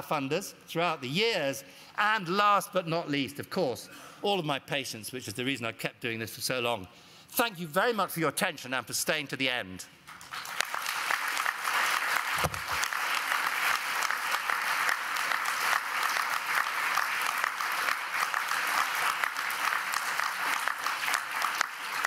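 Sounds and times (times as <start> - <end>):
audience applauding: 10.1 - 22.0.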